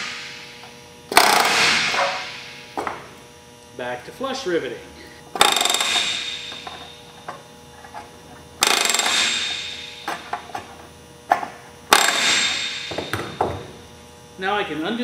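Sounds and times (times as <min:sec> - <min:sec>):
rivet gun rattling bursts: 0:01.1 - 0:01.8, 0:05.4 - 0:06.2, 0:08.6 - 0:09.5.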